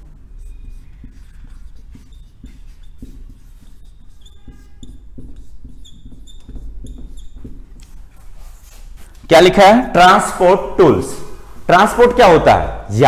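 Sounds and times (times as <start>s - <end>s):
marker squeaking on whiteboard: 0.0s - 9.6s.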